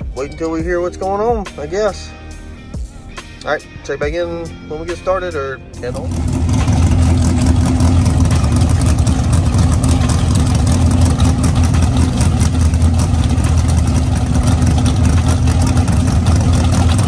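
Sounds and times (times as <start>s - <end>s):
race car engine idling loudly: 5.8s - 17.0s.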